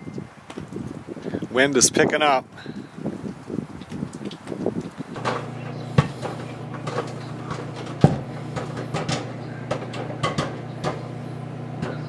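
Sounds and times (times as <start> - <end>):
microwave oven humming: 5.2 - 12.0.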